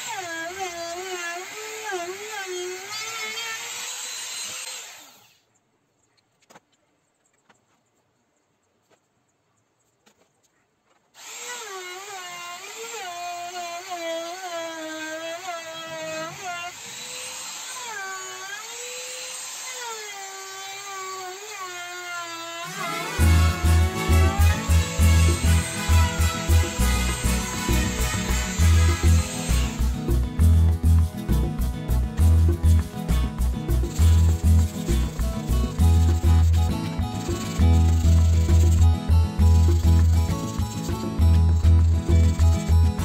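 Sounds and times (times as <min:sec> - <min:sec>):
trim router cutting wood: 0:00.0 - 0:05.4, 0:11.2 - 0:30.2, 0:33.9 - 0:43.0
music with heavy bass beat: 0:22.9 - 0:43.0.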